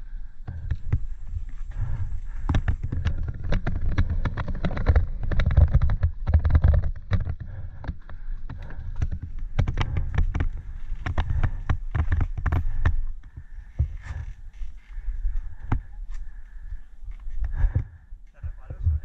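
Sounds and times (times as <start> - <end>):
wind rumbling on microphone: 0.0 - 19.0
bike clattering over bumps: 0.2 - 18.4.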